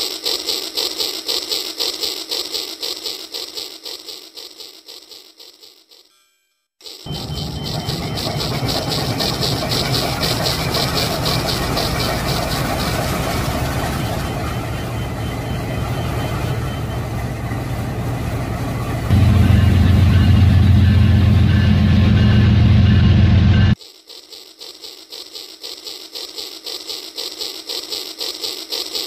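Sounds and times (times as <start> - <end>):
diesel locomotive engine clatter: 7.1 - 23.8
deep loud engine note: 19.1 - 23.8.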